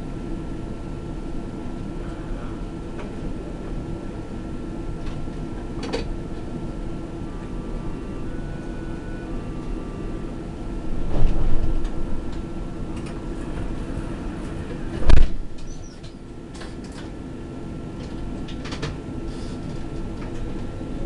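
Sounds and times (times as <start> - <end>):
electric train cab hum: 0.0 - 21.0
low rumble: 10.8 - 14.2, 14.8 - 15.7.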